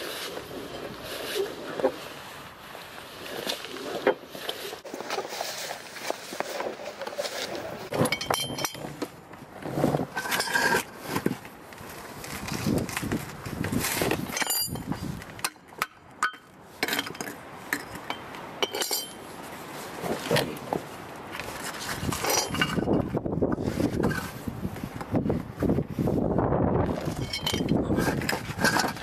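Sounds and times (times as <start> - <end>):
scraping and rustling: 0.0 - 15.4, 16.7 - 29.0
metal tools clinking: 7.9 - 9.1, 10.2 - 10.9, 14.3 - 15.6, 16.2 - 19.3, 22.1 - 23.0, 27.0 - 29.0.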